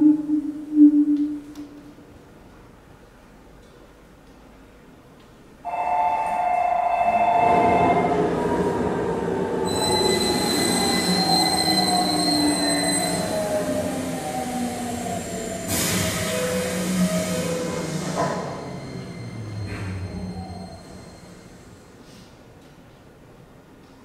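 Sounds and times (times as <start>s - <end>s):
subway wheels screeching on rails: 5.6s - 22.5s
train rumble: 5.7s - 22.3s.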